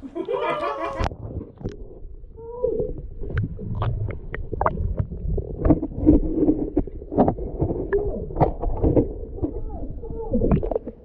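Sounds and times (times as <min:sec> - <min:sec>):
underwater rumbling wash of water: 0:00.8 - 0:11.0
sharp underwater clicks and knocks: 0:03.2 - 0:09.6.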